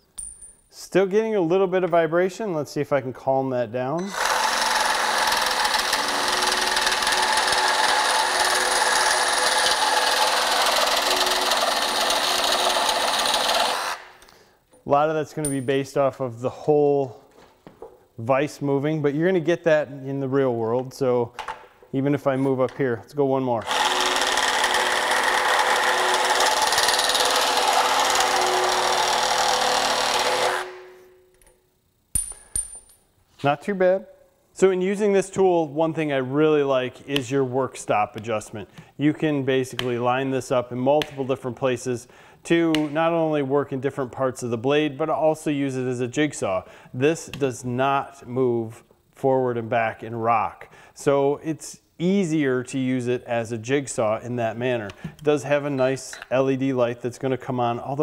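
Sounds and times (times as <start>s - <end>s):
reciprocating saw cutting metal: 4.0s - 14.2s, 23.6s - 31.0s.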